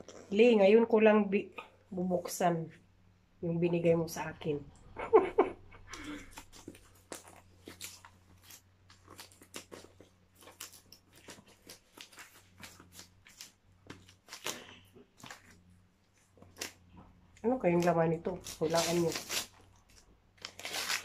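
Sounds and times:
wrapping paper rustling: 6.0 - 21.0.

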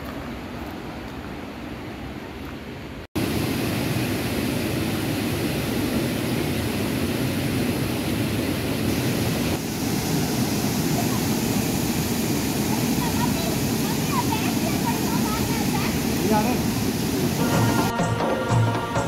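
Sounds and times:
quiet even rushing noise: 0.0 - 18.9
waterfall pouring into pool: 3.2 - 17.4.

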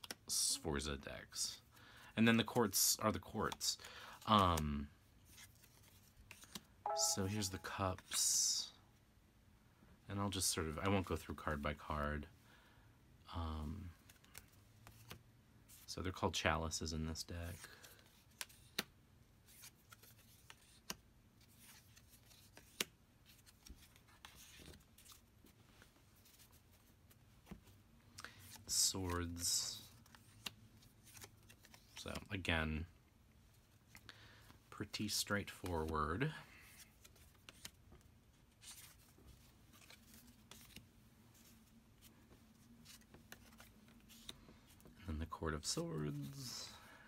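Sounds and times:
cards sliding and laid down: 38.5 - 40.8.

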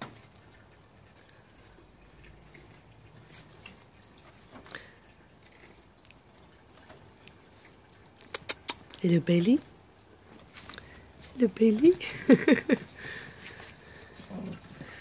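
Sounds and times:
puppy claws clicking on paving: 8.2 - 9.0.

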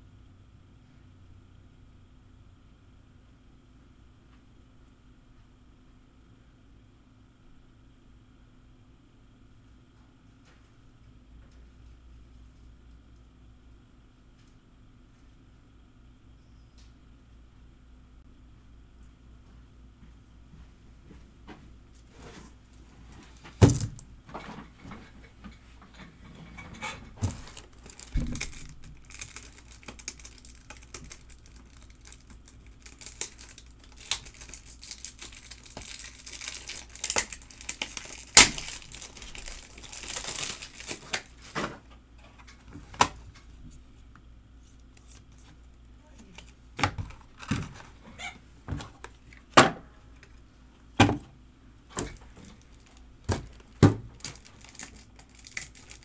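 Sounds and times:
foil wrappers tearing and crinkling: 27.2 - 41.7, 52.0 - 56.0.

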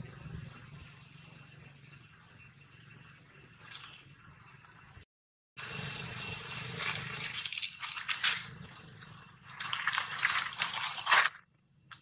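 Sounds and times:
dry leaves crackling and rustling: 5.8 - 11.4.

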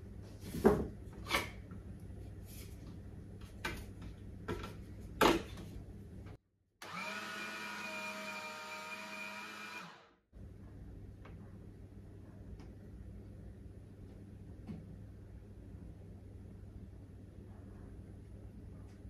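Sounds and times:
meat grinder motor whining: 6.8 - 10.2.

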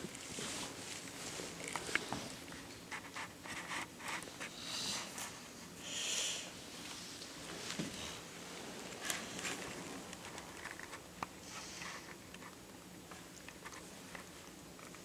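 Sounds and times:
soft breathy hiss: 4.3 - 8.4.

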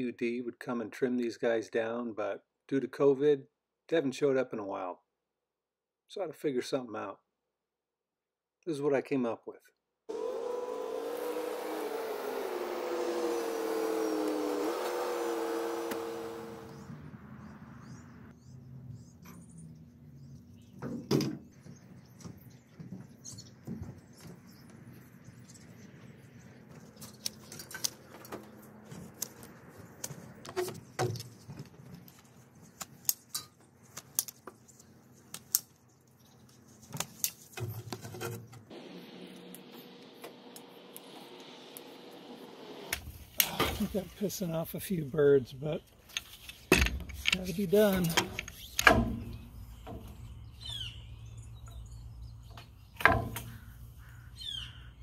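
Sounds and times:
pole pruner snapping branches: 10.1 - 16.7.

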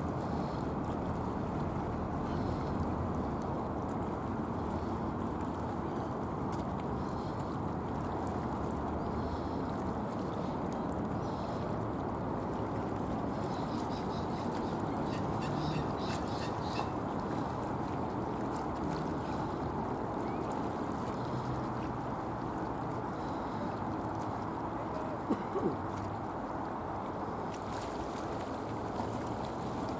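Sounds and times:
birds calling: 13.6 - 17.0.

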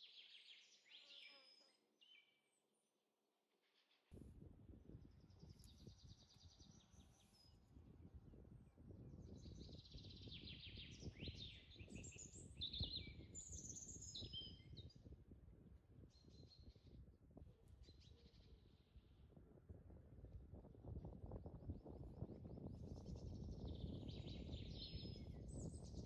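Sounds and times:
wind rumble on microphone: 4.1 - 26.0
small birds chirping: 5.0 - 7.7, 9.2 - 15.1, 22.6 - 26.0.

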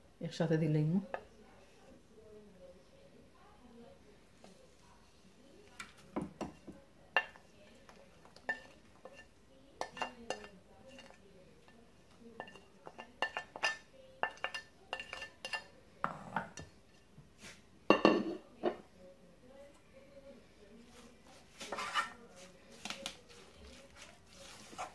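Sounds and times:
wooden spatula scraping ceramic plate: 8.3 - 11.2, 21.5 - 22.2, 23.3 - 24.9
clinks and taps with plate ring: 17.9 - 18.8.

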